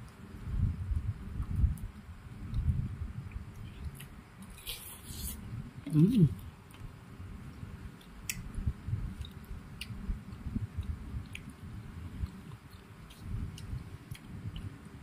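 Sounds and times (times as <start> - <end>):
chewing: 12.2 - 14.7.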